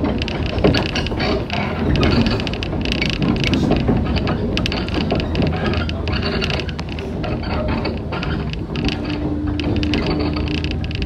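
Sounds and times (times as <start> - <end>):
quick clicks and rattles: 0.0 - 11.0
train wheels rumbling on rails: 0.0 - 11.0.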